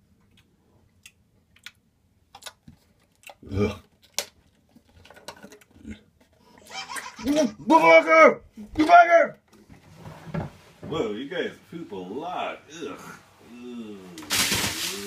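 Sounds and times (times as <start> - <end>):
short vocal sound: 12.7 - 15.0.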